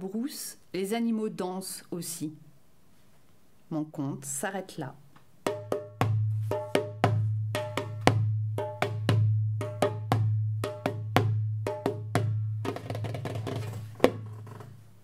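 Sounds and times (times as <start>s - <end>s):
sharp drum strikes: 5.5s - 13.1s.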